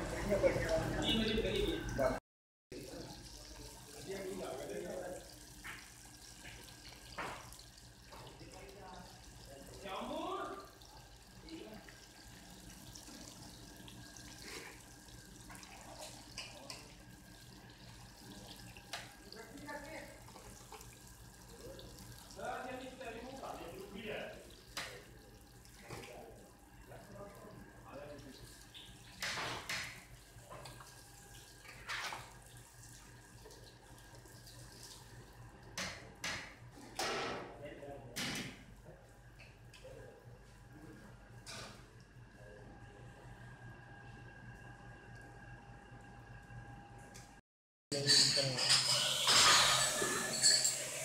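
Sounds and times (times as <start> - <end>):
oil sizzling in a wok: 48.7 - 51.0.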